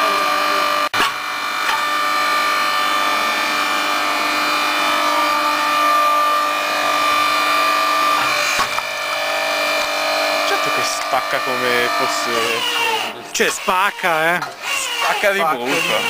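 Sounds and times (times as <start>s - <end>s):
log splitter motor humming: 0.0s - 16.0s.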